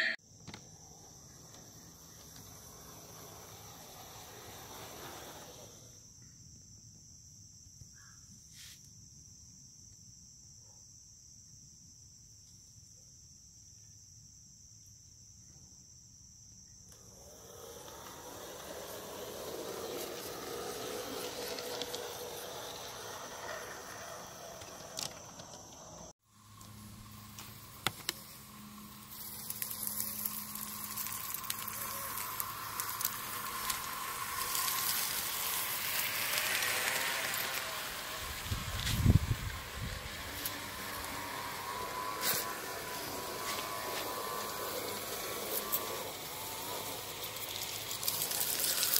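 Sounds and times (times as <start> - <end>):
model train humming: 0.0 - 6.0, 16.9 - 48.9
insects trilling: 0.0 - 10.6, 11.4 - 48.9
model train running on track: 0.8 - 6.0, 16.9 - 48.9.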